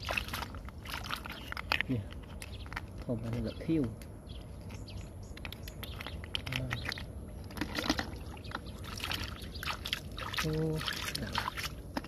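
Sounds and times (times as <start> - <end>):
hands splashing in muddy water: 0.0 - 1.7, 6.0 - 12.0
snail shells clicking: 0.4 - 8.8.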